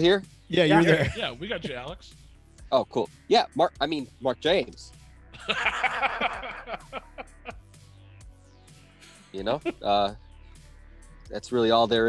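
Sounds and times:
background music: 0.0s - 12.0s
men laughing: 0.6s - 1.9s, 5.4s - 7.6s, 9.1s - 10.0s.

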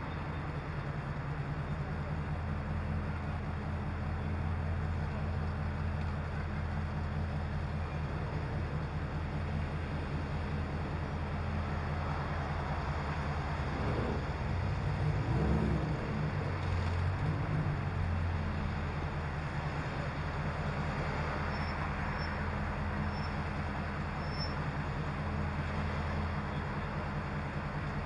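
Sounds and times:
car engine idling: 0.0s - 28.0s.

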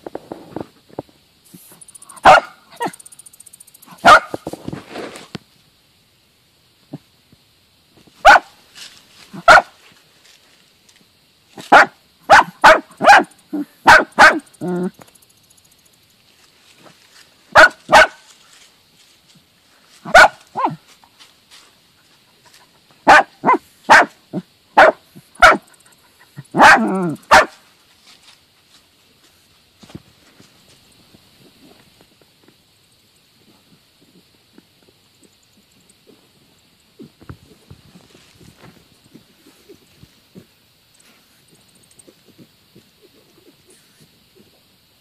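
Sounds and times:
dogs barking excitedly: 2.1s - 3.0s, 3.9s - 4.4s, 8.2s - 8.5s, 9.4s - 9.8s, 11.6s - 14.9s, 17.5s - 18.3s, 20.0s - 20.8s, 23.0s - 27.6s.

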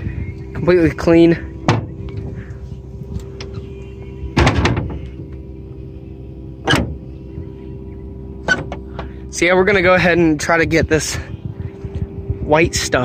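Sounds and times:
steady low hum: 0.0s - 13.0s
metal panel clunk and rattle: 1.6s - 2.3s, 4.3s - 5.4s, 6.6s - 7.0s, 8.4s - 9.2s
latch click: 6.6s - 7.0s.

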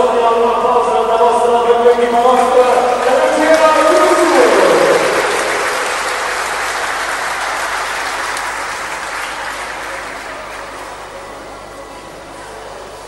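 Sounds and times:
crowd applauding: 2.2s - 11.2s.

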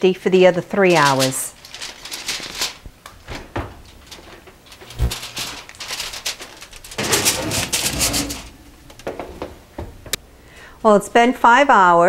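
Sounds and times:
oven rack rattling and scraping: 3.2s - 10.1s.

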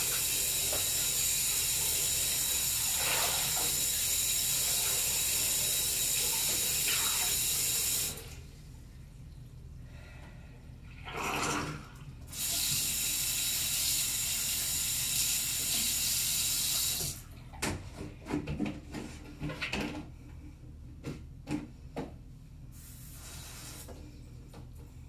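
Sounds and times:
water pouring from bucket: 1.8s - 5.5s.

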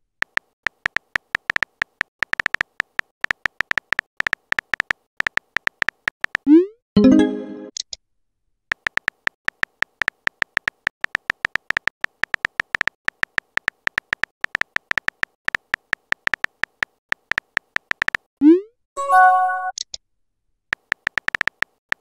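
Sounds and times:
rapid electronic keyboard clicks: 0.2s - 6.5s, 8.7s - 18.3s, 20.7s - 22.0s.

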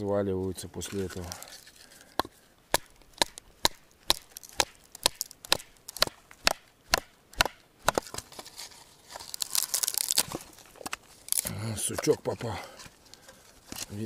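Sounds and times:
wood splintering and cracking: 1.0s - 8.4s, 9.1s - 12.2s.

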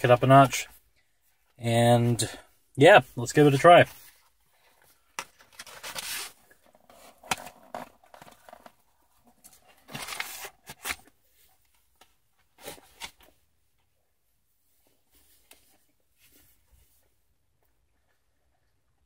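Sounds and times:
cardboard box crinkling and scraping: 5.4s - 11.0s.

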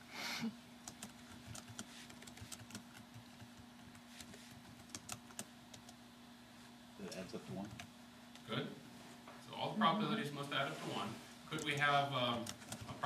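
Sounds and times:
low electrical hum: 0.0s - 13.0s
faint clicks and taps: 11.5s - 13.0s.

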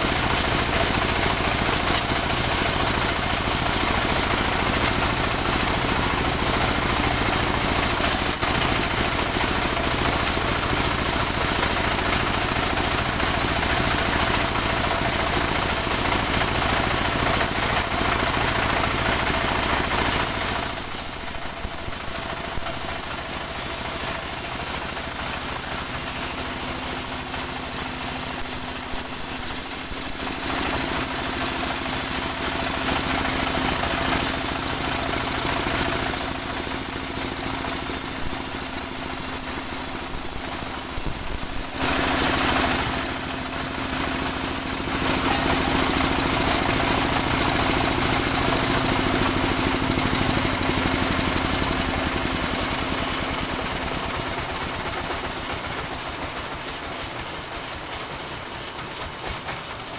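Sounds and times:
engine running under load: 0.0s - 59.9s
saw blade hissing through wood: 16.5s - 51.6s.

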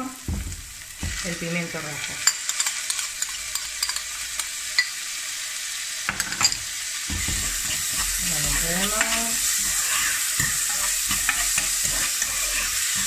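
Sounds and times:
onion sizzling in a pan: 0.0s - 13.0s
metal spoon scraping a plate: 7.3s - 13.0s.

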